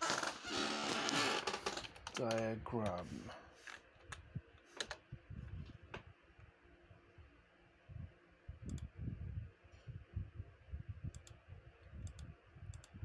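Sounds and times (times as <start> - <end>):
computer keyboard and mouse clicks: 1.8 - 3.0, 3.7 - 5.0.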